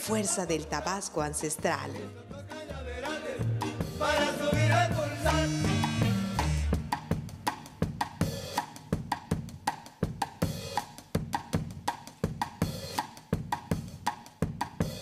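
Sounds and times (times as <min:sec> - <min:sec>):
drum and cymbal strikes: 0:03.4 - 0:15.0.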